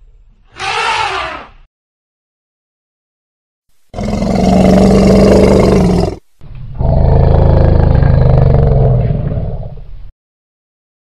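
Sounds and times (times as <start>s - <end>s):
elephant roaring: 0.6s - 1.5s, 4.0s - 6.2s, 6.8s - 9.8s.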